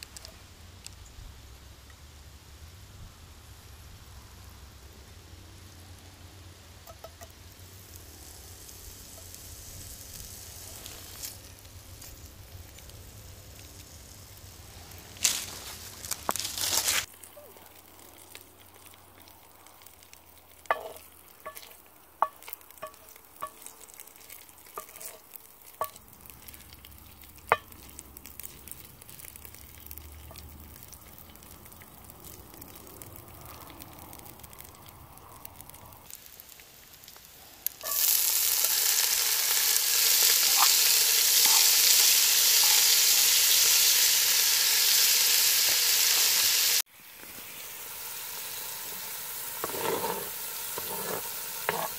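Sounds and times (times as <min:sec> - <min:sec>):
bacon sizzling with pops: 0:00.0 - 0:02.7, 0:03.4 - 0:51.9
loud sizzle of peppers in fat: 0:00.0 - 0:51.9
wooden spoon stirring: 0:20.6 - 0:32.1, 0:49.6 - 0:51.9.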